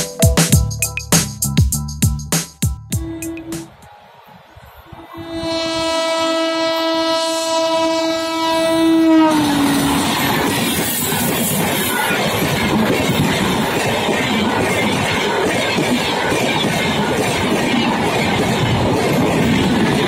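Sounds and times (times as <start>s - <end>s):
train horn blast: 3.0s - 4.2s, 4.8s - 10.4s
train coaches clattering past: 3.0s - 20.0s.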